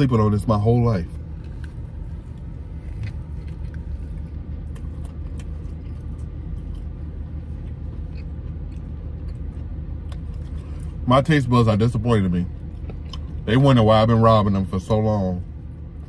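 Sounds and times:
car cabin rumble: 0.0s - 16.0s
man chewing food: 1.3s - 11.0s, 12.6s - 13.4s.

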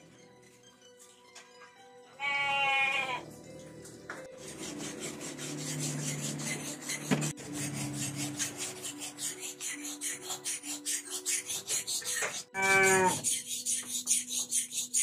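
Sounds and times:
farm animal bleating: 2.2s - 3.2s, 12.6s - 13.2s
scratchy rasping with fine ticks: 4.4s - 15.0s.

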